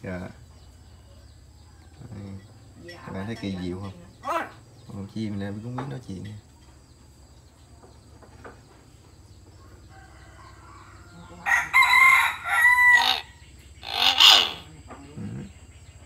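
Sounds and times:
myna bird calling: 0.0 - 8.1, 9.0 - 16.0.

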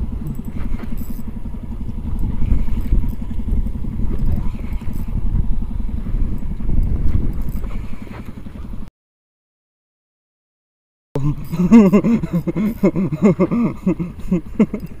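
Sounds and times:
small boat engine puttering: 0.0 - 8.9, 11.2 - 15.0.

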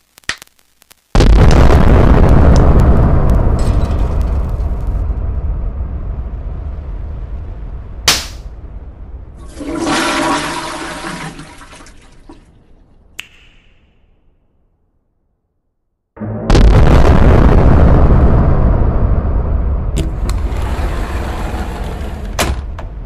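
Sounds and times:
low rumble: 1.2 - 10.4, 16.2 - 23.0
toilet flush rushing and gurgling: 9.4 - 12.2
sharp click: 13.2 - 13.9.

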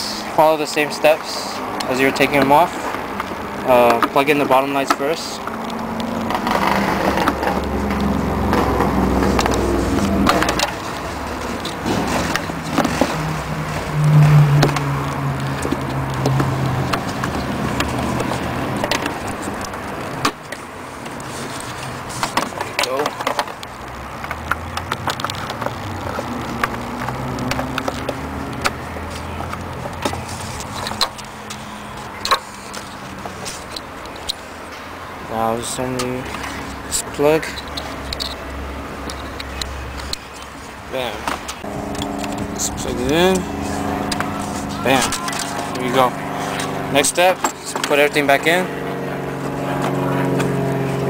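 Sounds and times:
hands rubbing plastic: 2.2 - 34.7, 35.6 - 46.8.

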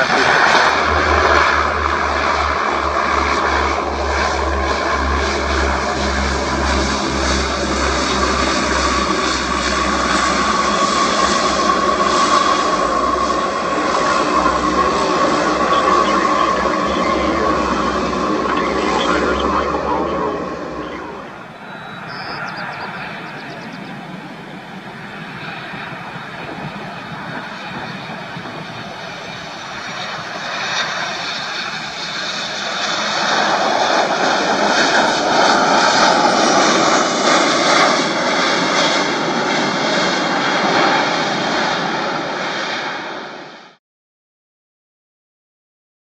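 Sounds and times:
jet airliner landing: 0.0 - 43.8.

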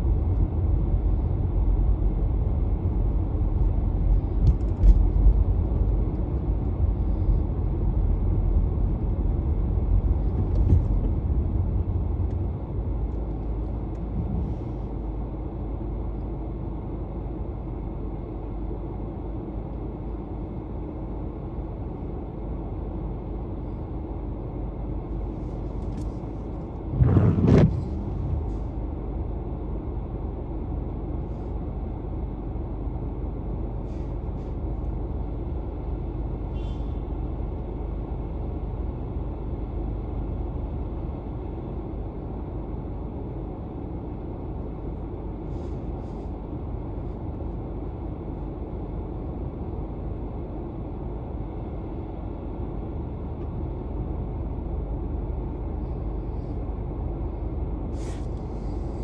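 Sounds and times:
car driving rumble: 0.0 - 16.2, 25.1 - 29.6
short thump: 27.0 - 28.2.

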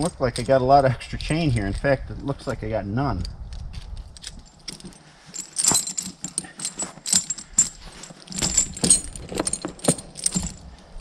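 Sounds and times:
metal chain links clinking: 0.0 - 2.6, 3.7 - 11.0.

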